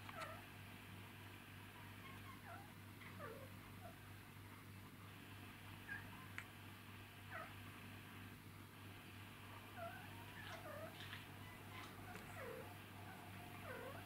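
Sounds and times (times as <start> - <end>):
dog whining: 9.8 - 14.0.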